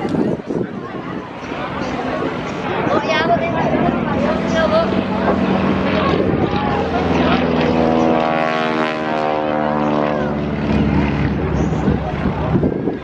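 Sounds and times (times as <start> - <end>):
propeller aircraft engine drone: 0.0 - 13.0.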